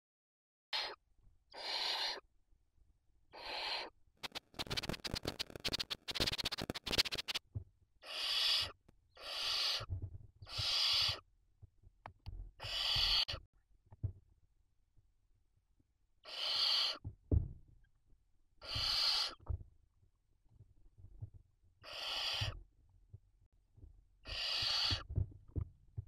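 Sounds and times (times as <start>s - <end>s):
owls hissing calls: 0.7s - 2.2s, 3.3s - 7.4s, 8.0s - 9.9s, 10.5s - 11.2s, 12.6s - 13.4s, 16.2s - 17.0s, 18.6s - 19.4s, 21.8s - 22.6s, 24.2s - 25.1s
scratching and rustling on nest: 4.2s - 7.4s.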